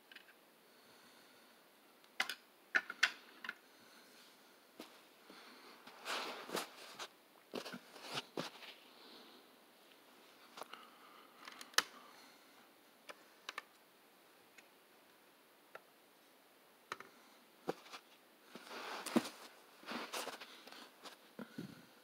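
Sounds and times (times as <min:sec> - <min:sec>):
clicks and taps of model trucks: 0:02.2 - 0:03.6.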